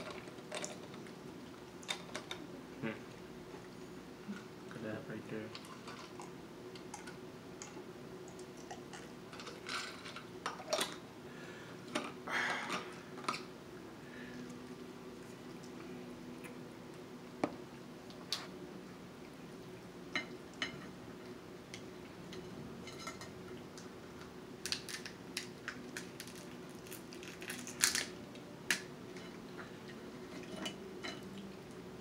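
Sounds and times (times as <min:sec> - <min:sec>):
faint steady hum: 0:00.0 - 0:32.0
crab shells cracking by hand: 0:24.6 - 0:28.9.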